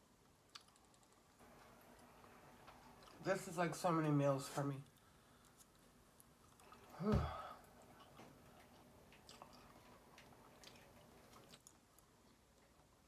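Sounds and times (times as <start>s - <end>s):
woman chewing food: 0.3s - 3.2s, 4.9s - 7.0s, 7.6s - 13.0s.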